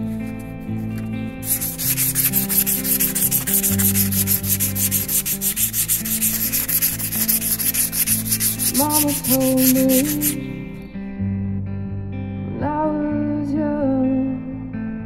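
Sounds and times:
hand sanding rasp: 0.0 - 10.4
background music: 0.0 - 15.0.

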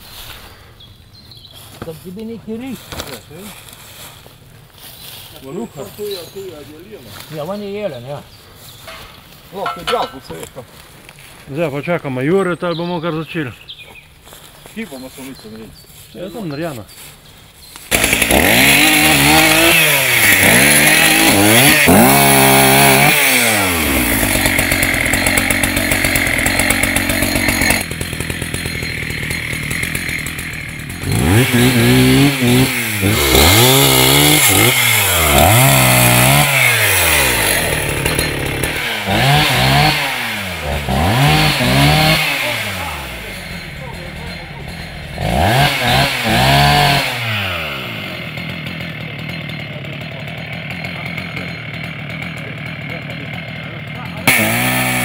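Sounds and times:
chainsaw engine revving: 17.9 - 55.0.

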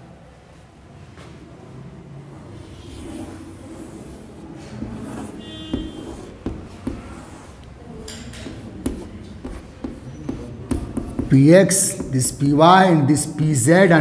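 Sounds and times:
chalk squeak: 2.6 - 4.2, 4.8 - 11.4
chalk tapping and scraping on blackboard: 2.6 - 12.6, 13.2 - 14.0.

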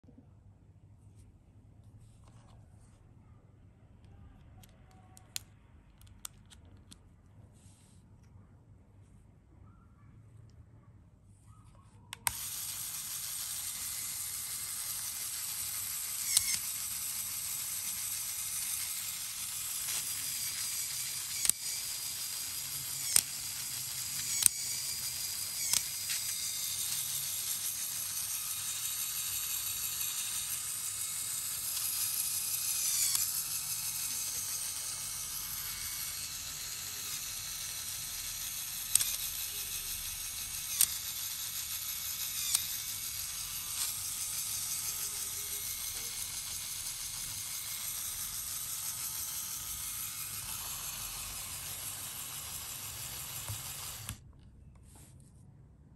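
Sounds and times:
plastic gears whirring: 4.4 - 7.0, 12.1 - 54.2.

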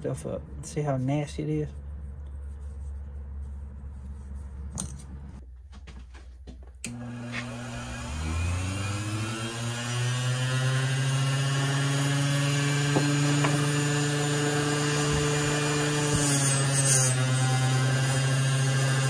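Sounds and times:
bench grinder motor hum: 6.9 - 19.0.

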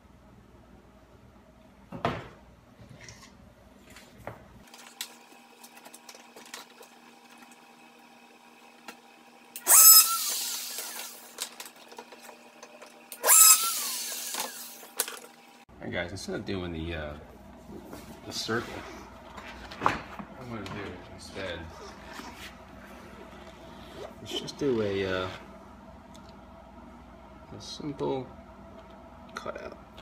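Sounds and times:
rotary tool whining: 4.7 - 15.6.

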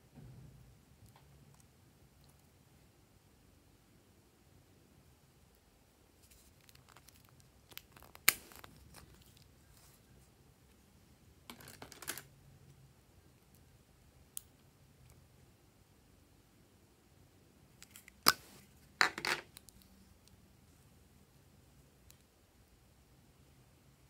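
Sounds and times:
makeup packaging clicks and rustles: 6.3 - 9.5, 11.5 - 12.3.

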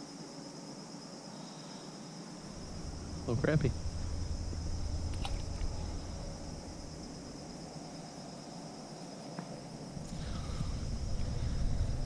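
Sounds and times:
crickets chirring: 0.0 - 12.0
low rumble: 2.4 - 7.8, 9.9 - 12.0.

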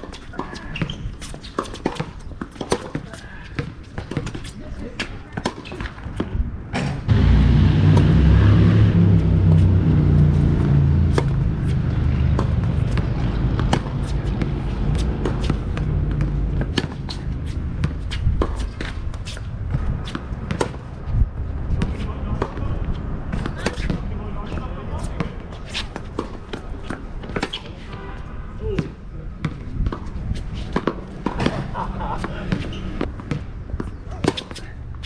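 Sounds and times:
shoes on a hard court: 0.0 - 7.0, 9.2 - 35.0
tennis balls bouncing: 0.0 - 7.0, 10.4 - 21.0, 21.7 - 27.9, 28.7 - 35.0
loud low rumble: 7.1 - 13.6.

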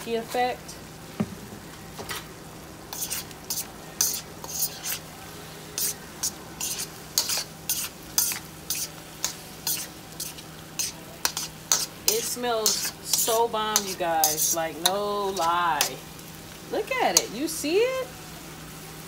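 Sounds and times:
food sizzling: 0.0 - 19.0
scraping strokes in a wok: 2.9 - 16.3.

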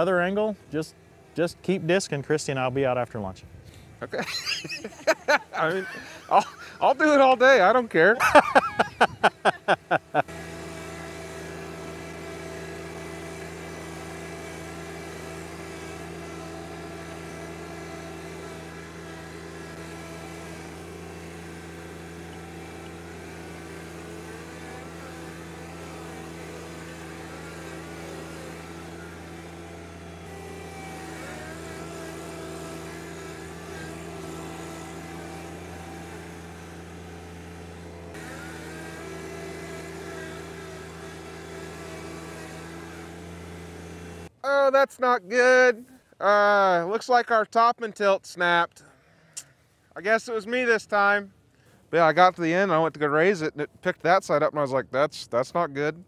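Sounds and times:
tractor diesel engine running: 3.0 - 44.8.

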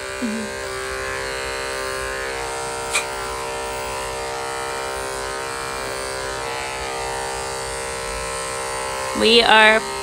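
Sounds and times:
electric clippers buzzing: 0.0 - 10.0.

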